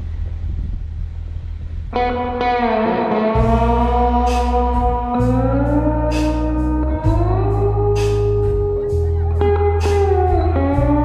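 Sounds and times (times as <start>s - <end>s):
bass line: 0.0s - 11.0s
slide guitar: 1.9s - 11.0s
cymbal beat: 3.4s - 11.0s.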